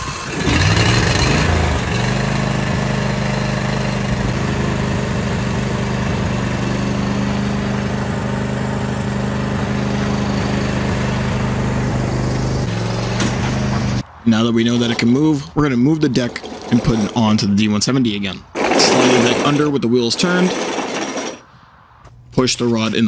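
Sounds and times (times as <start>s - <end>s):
lawn tractor engine running: 0.0s - 14.0s, 14.7s - 17.4s, 18.3s - 21.4s.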